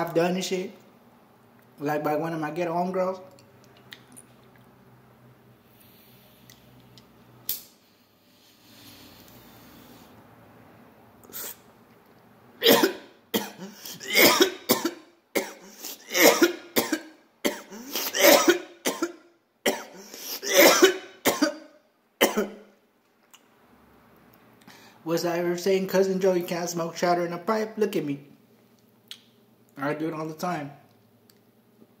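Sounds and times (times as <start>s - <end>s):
man coughing harshly: 12.6s - 22.6s.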